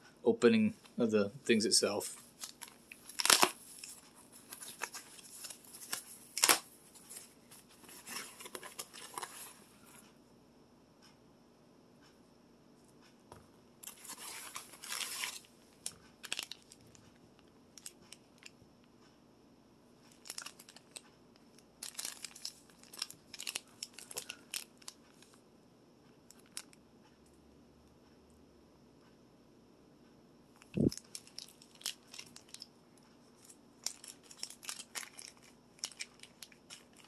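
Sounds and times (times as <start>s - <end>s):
packaging tearing and crinkling: 2.3s - 7.2s, 13.8s - 15.5s, 16.2s - 16.9s, 20.1s - 21.0s, 21.8s - 25.0s, 30.8s - 32.7s, 33.8s - 37.0s.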